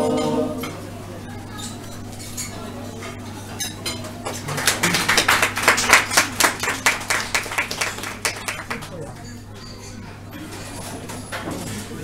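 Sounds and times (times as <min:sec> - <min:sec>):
small audience applauding: 0:04.3 - 0:09.1.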